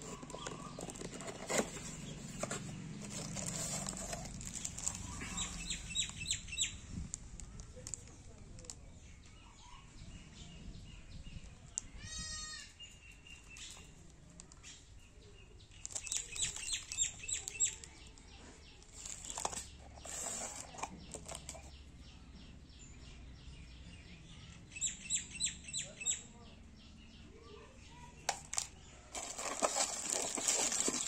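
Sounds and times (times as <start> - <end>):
plastic wrapper crinkling: 0.0 - 6.2, 15.8 - 18.0, 18.8 - 21.7, 28.3 - 31.0.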